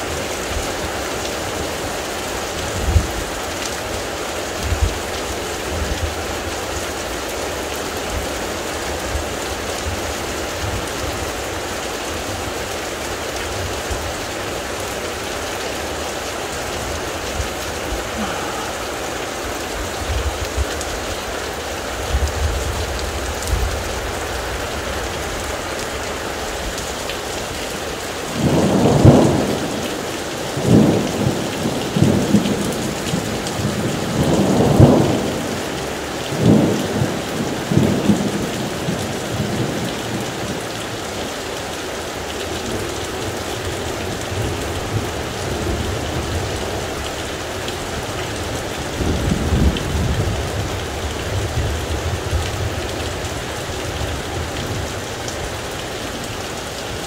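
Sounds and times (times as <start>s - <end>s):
heavy rain falling: 0.0s - 57.0s
thunder rumbling: 28.3s - 29.9s.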